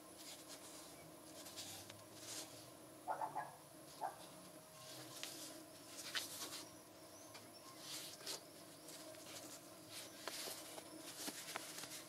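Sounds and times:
gloved hands rustling: 0:03.9 - 0:06.8, 0:07.8 - 0:12.0.

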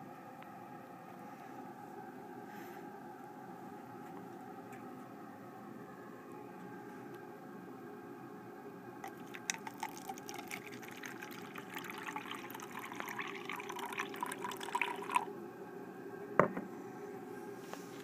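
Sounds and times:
juice pouring into plastic cup: 0:09.0 - 0:15.3.

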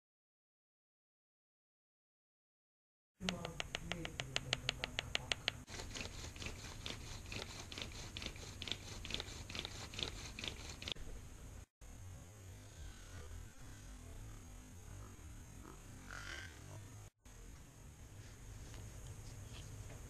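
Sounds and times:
bow drill scraping stone: 0:05.7 - 0:11.0.

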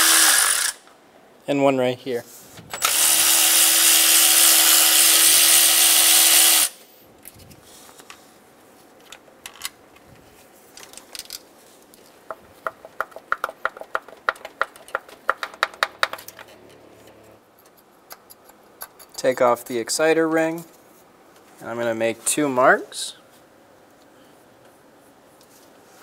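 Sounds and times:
power tool whining: 0:00.0 - 0:00.9, 0:02.8 - 0:06.8.

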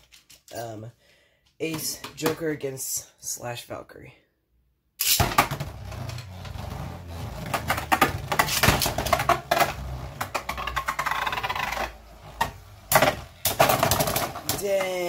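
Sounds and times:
spinning tops whirring and clashing: 0:05.0 - 0:05.4.

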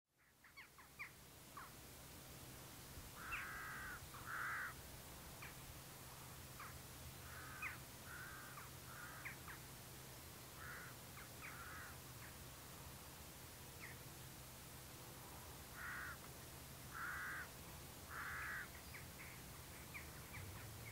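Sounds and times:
crows cawing: 0:03.2 - 0:04.8, 0:06.6 - 0:09.6, 0:10.6 - 0:12.0, 0:15.8 - 0:16.3, 0:16.9 - 0:19.4.

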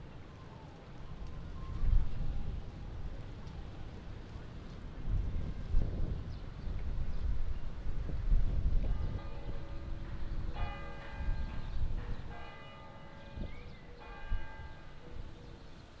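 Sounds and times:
church bell ringing: 0:08.8 - 0:15.5.

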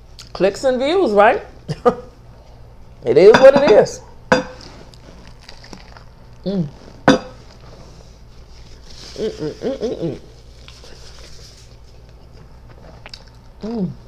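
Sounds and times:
woman humming with enjoyment: 0:06.4 - 0:06.8, 0:09.1 - 0:10.3, 0:13.6 - 0:14.0.

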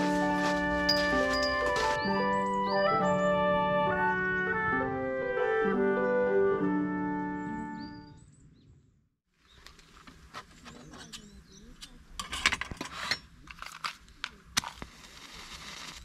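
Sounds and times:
music track: 0:00.0 - 0:07.9.

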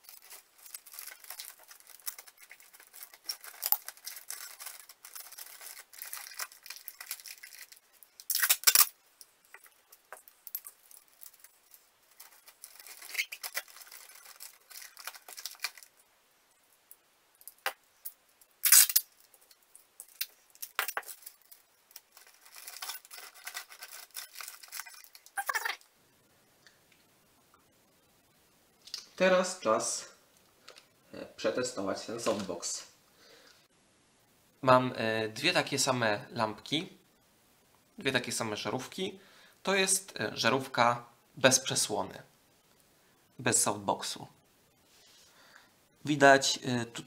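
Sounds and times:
packing tape pulled off roll: 0:00.0 - 0:09.0, 0:12.2 - 0:15.9, 0:18.6 - 0:19.1, 0:20.0 - 0:25.7
plastic bag crinkling: 0:00.0 - 0:16.0, 0:18.6 - 0:25.8.

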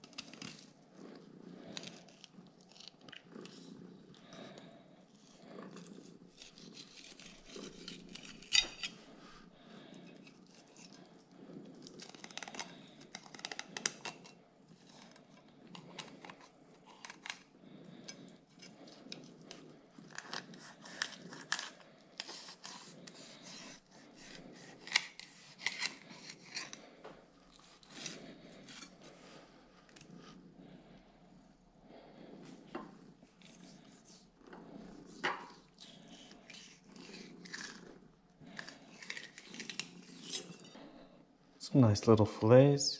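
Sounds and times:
knife crunching through fish: 0:20.1 - 0:26.8.

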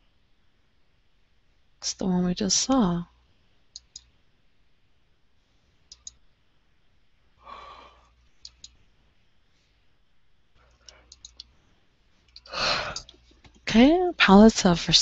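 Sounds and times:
faint computer mouse clicks: 0:03.7 - 0:04.1, 0:05.9 - 0:06.2, 0:08.4 - 0:08.8, 0:10.8 - 0:11.5
person breathing out: 0:07.4 - 0:08.1, 0:12.5 - 0:13.1.

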